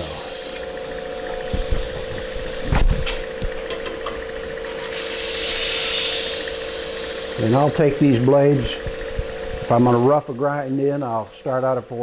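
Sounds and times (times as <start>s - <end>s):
belt grinder humming: 0.0s - 12.0s
blade grinding hiss: 4.6s - 7.7s.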